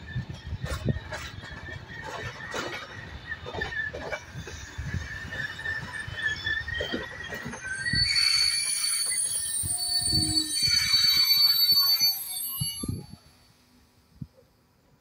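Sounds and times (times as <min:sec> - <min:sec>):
train wheels knocking and rumbling: 0:00.0 - 0:08.0
high-pitched wheel squeal: 0:00.1 - 0:13.8.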